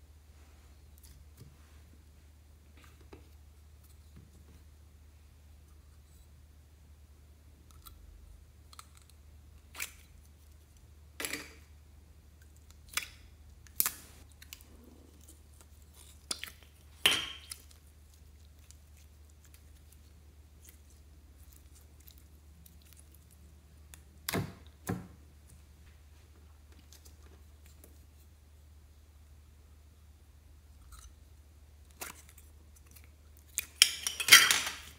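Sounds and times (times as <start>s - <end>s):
sticky slime sounds: 12.3s - 25.5s.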